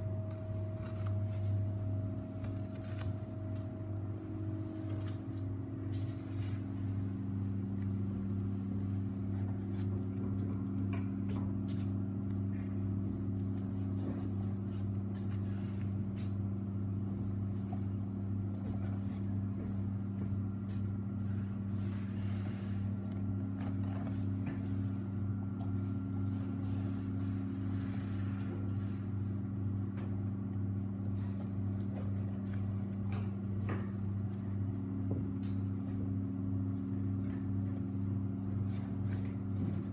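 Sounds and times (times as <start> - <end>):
machinery hum: 0.0 - 39.9.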